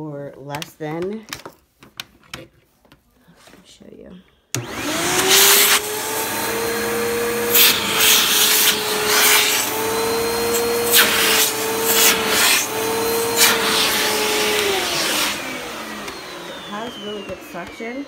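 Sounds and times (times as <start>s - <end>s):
vacuum cleaner running on carpet: 4.6s - 18.0s.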